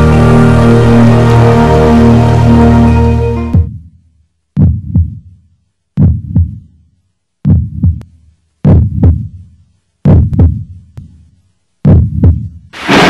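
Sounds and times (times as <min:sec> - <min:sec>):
heartbeat thumps: 0:03.5 - 0:04.0, 0:04.6 - 0:05.4, 0:06.0 - 0:06.8, 0:07.4 - 0:11.2, 0:11.8 - 0:12.7.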